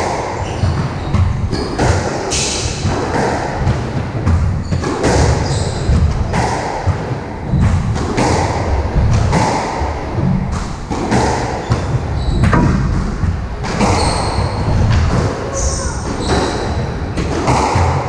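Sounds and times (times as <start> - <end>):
shoes squeaking on wooden floor: 13.7 - 16.8.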